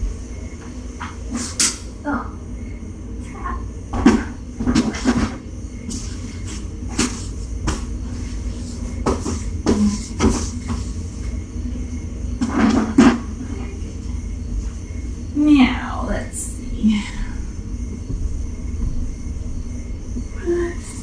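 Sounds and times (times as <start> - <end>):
steady low hum: 0.0 - 21.0
irregular knocks and clicks: 17.9 - 20.4.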